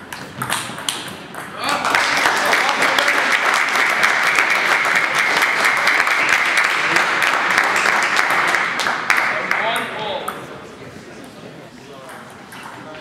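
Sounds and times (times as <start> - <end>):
crowd applauding: 1.6 - 9.7.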